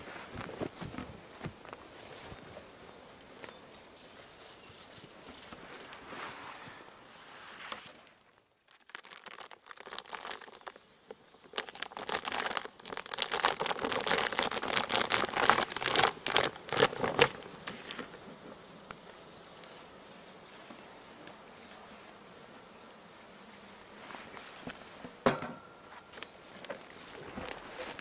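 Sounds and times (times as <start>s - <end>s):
plastic sheet crinkling: 8.6s - 18.1s, 26.2s - 28.0s.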